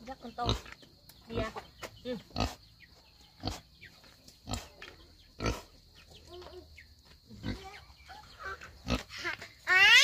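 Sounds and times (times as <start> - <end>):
farmyard animals calling: 1.3 - 10.0.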